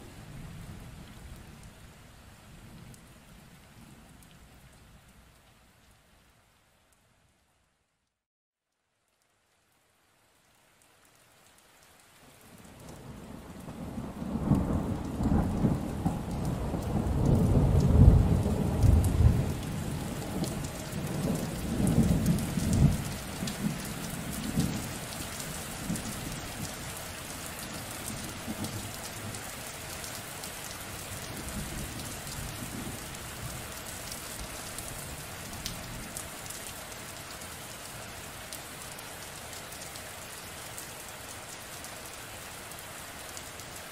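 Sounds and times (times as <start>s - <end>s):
rain falling: 0.0s - 43.9s
thunder rumbling: 13.0s - 24.9s.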